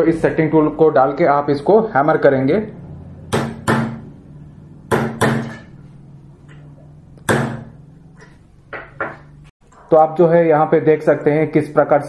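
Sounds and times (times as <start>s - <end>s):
hammer striking metal tool: 3.3s - 4.1s, 4.9s - 5.9s, 7.2s - 7.8s.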